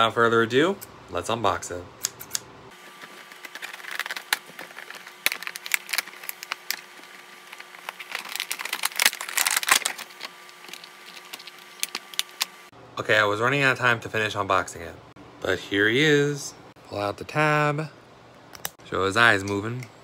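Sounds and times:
faint steady hum: 0:00.0 - 0:20.0
plastic packaging crinkling: 0:02.8 - 0:12.7.

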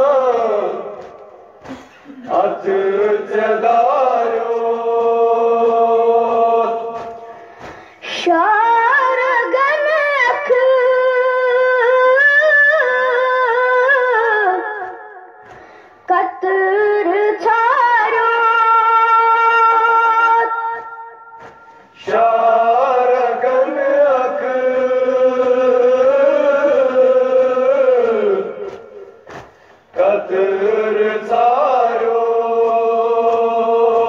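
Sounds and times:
boy singing a lament: 0:08.0 - 0:15.3, 0:16.1 - 0:20.9.

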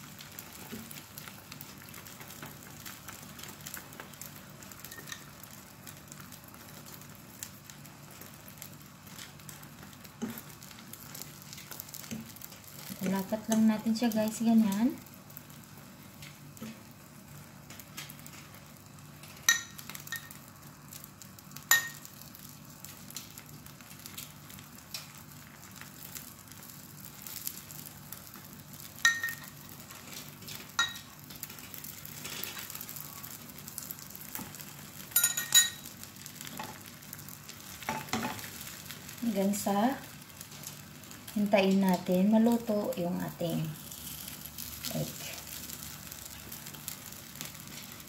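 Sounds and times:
egg and bread sizzling in pan: 0:00.0 - 0:48.0
metal fork clinking against pan: 0:35.2 - 0:35.8.

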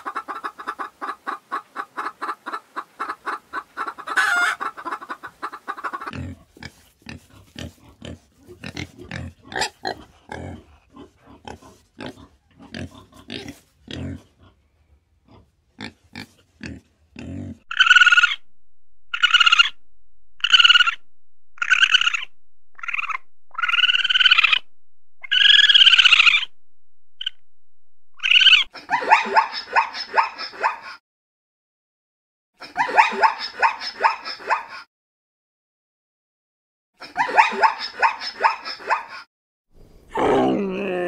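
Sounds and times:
pig high-pitched calls: 0:03.8 - 0:14.6, 0:15.3 - 0:18.5, 0:19.1 - 0:19.8, 0:20.4 - 0:21.0, 0:21.6 - 0:26.6, 0:28.2 - 0:31.0, 0:32.6 - 0:34.9, 0:37.0 - 0:39.2
pig grunting: 0:06.1 - 0:14.6, 0:15.2 - 0:18.2.

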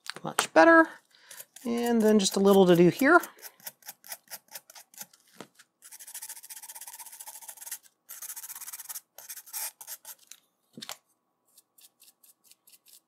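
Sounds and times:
pen scrubbing metal pins: 0:01.3 - 0:05.2, 0:05.8 - 0:10.3.

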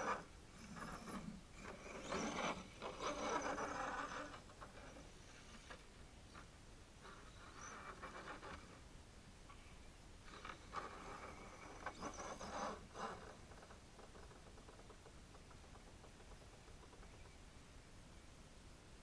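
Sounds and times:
toy truck motor whirring: 0:00.0 - 0:05.9, 0:07.0 - 0:08.8, 0:10.3 - 0:14.9.

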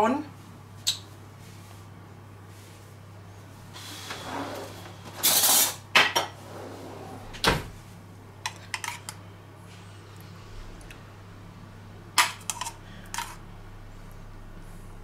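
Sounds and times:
spoon scraping saucepan: 0:12.3 - 0:13.4.

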